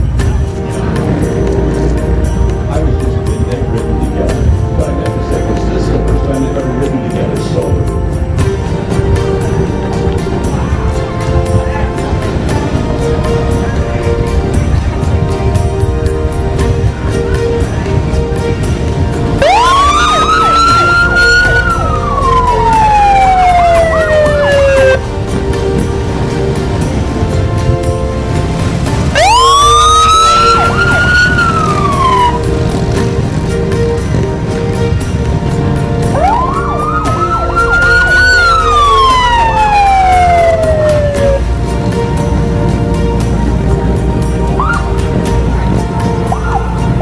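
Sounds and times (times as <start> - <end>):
background music: 0.0 - 47.0
police siren wailing: 19.3 - 25.8, 28.7 - 33.3, 36.0 - 41.6
siren yelping sweep: 19.4 - 25.0, 29.2 - 32.5, 36.1 - 41.4.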